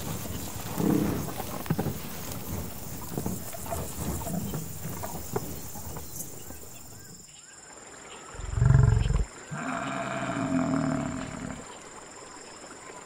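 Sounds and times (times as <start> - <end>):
buffalo grunt: 0.0 - 6.7, 8.4 - 11.7
buffalo bellow: 8.4 - 11.7.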